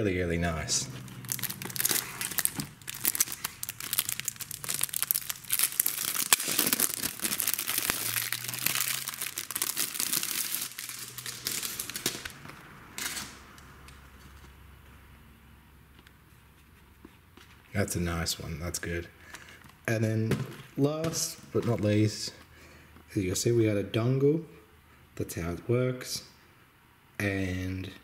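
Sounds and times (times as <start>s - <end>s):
plastic wrap crinkling and tearing: 1.0s - 13.4s.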